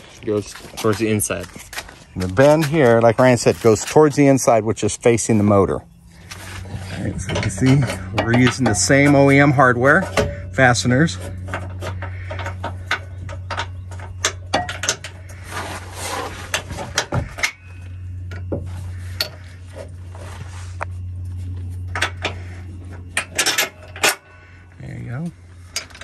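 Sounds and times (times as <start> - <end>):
steady low hum: 0.0 - 26.0
metal tools clinking: 0.4 - 15.3, 21.8 - 24.4.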